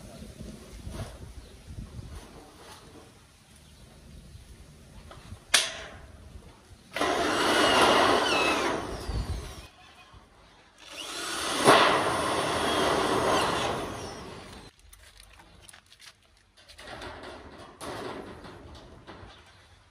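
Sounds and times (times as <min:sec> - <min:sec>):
power tool running: 0:06.9 - 0:09.7, 0:10.8 - 0:14.7.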